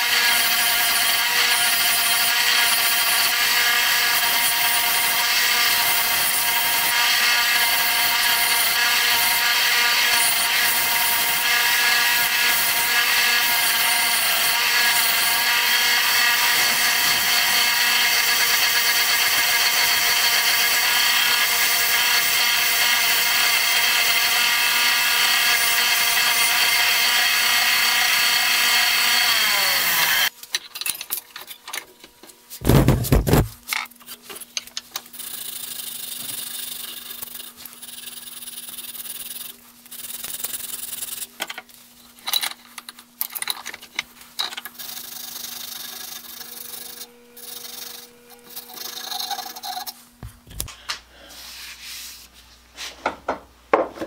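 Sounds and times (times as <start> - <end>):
bench grinder running: 0.0 - 30.3, 44.8 - 49.9
loud thump: 32.6 - 33.5.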